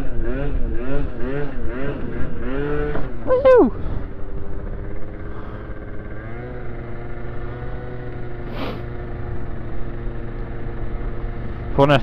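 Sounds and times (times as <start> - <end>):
moped engine cruising: 0.0 - 12.0
short hiss: 8.5 - 8.8.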